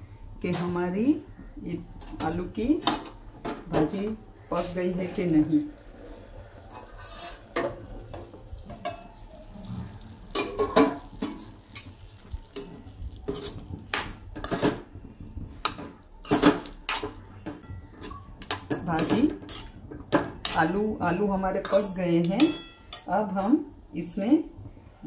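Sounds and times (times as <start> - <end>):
steel spoon scraping a pan: 4.5 - 8.2, 8.8 - 14.9, 16.2 - 19.8, 21.6 - 23.0.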